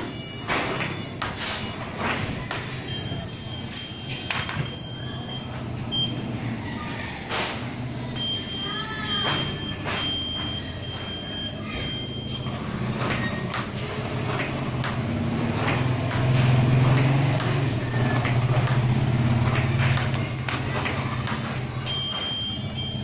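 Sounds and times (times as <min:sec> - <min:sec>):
ping-pong balls clicking and bouncing: 0:00.0 - 0:06.1, 0:07.3 - 0:23.0
high electronic beep: 0:02.8 - 0:06.2, 0:08.2 - 0:12.5, 0:21.8 - 0:23.0.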